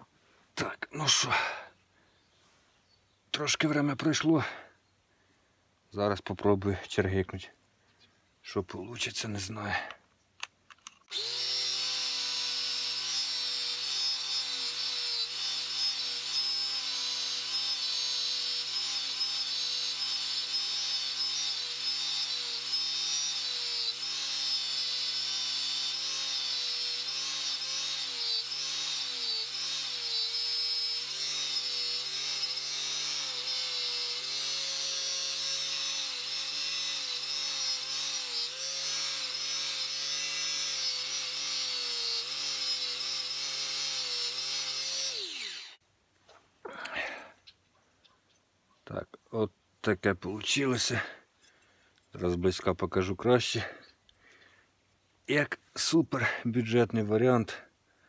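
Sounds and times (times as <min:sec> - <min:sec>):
angle grinder with cup brush: 0:11.0 - 0:45.8.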